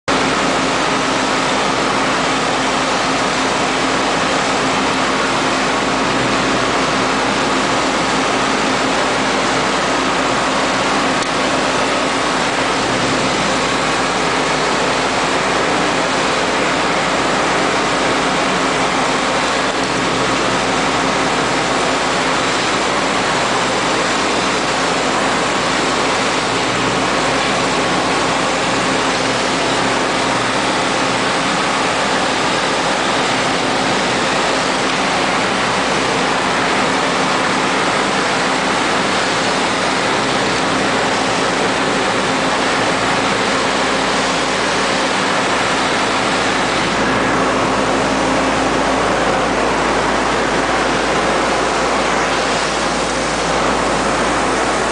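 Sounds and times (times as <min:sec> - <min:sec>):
machine engine and pump running: 0:00.0 - 0:54.9.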